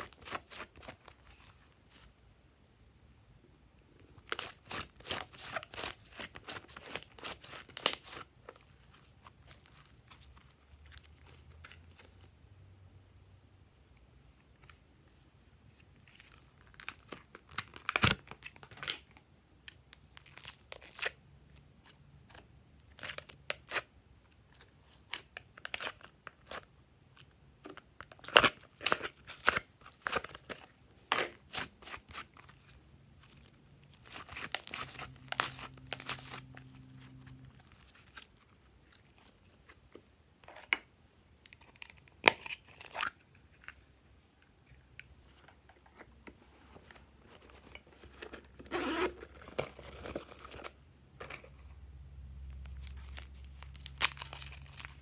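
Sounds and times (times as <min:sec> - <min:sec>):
sticky slime crackles: 0:04.2 - 0:12.0, 0:31.4 - 0:39.8, 0:52.4 - 0:55.0.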